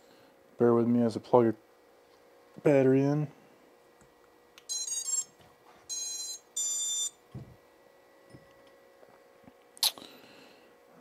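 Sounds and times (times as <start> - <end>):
drone motor beeps: 5.9 - 7.2.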